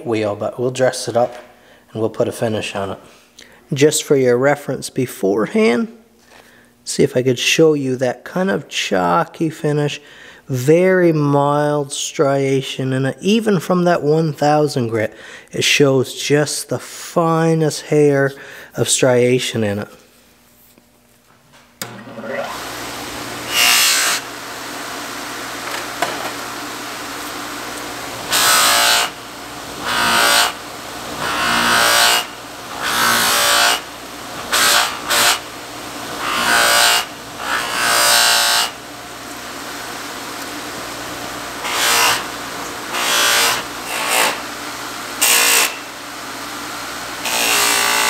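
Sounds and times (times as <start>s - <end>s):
bench buffer motor humming: 21.8s - 48.0s
knife blade hissing on buffing wheel: 22.2s - 24.7s, 27.1s - 39.4s, 41.6s - 44.5s, 45.2s - 46.0s.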